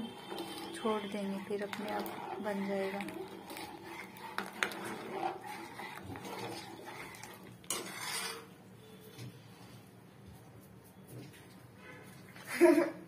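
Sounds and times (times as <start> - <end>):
ladle clinking and scraping pot: 0.0 - 8.6.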